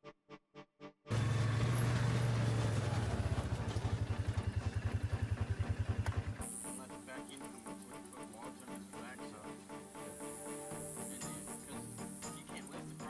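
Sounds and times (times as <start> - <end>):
heavy equipment engine running: 1.1 - 7.0.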